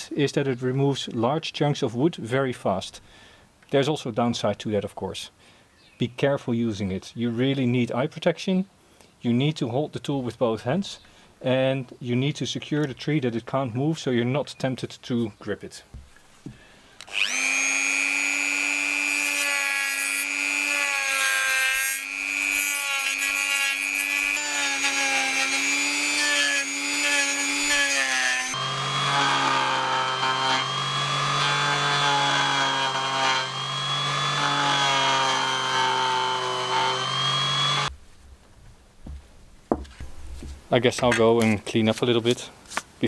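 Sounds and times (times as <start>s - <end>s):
rotary tool whining cutting wood: 17.0s - 37.9s.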